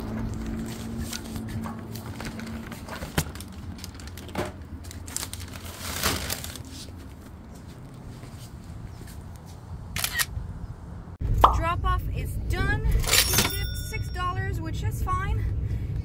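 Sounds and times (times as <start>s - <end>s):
plastic bags rustling: 0.0s - 7.3s.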